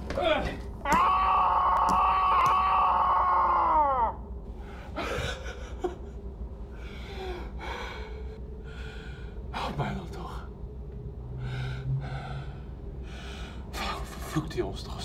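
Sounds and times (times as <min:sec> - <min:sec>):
person screaming: 0:00.8 - 0:04.2.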